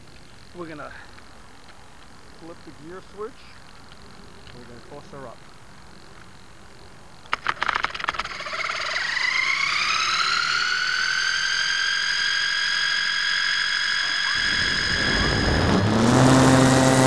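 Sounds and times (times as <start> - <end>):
electric motor whine: 7.3 - 17.0
propeller rushing noise: 7.3 - 17.0.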